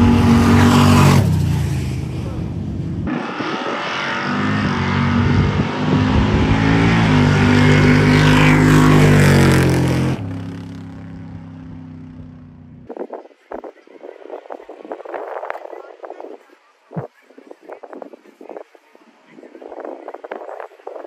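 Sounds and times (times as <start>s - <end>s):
drag racing engine at full throttle: 0.0s - 12.9s.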